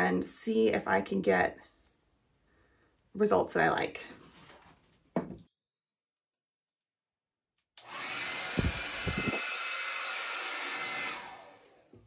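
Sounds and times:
hair dryer blowing: 7.8s - 12.0s.

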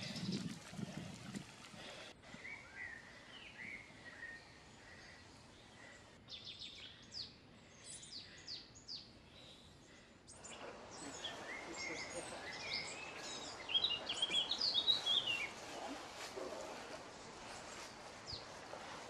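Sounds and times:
songbirds chirping and warbling: 0.0s - 19.0s
steady hiss: 10.4s - 19.0s.

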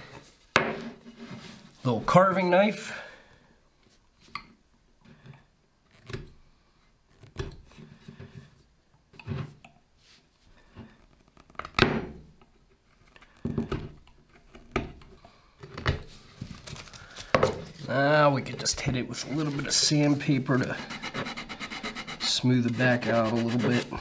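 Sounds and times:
knife scraping wood: 19.2s - 24.0s.

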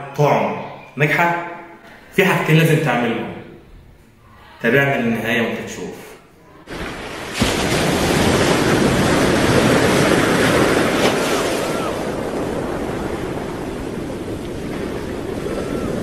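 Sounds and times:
ocean waves washing ashore: 6.5s - 16.0s.

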